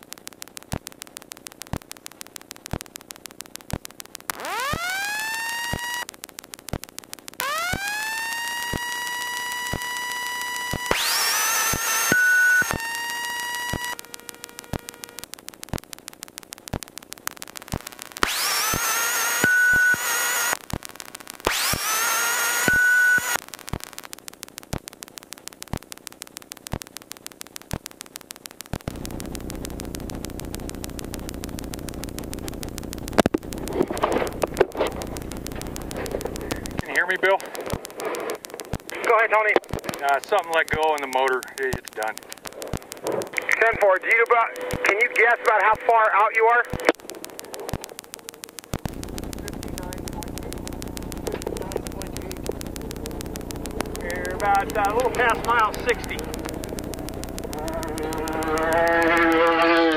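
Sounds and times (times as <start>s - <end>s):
ticking interference: 0.0s - 59.9s
electrical whine rising in pitch: 3.6s - 15.8s, 17.4s - 24.1s, 42.2s - 59.9s.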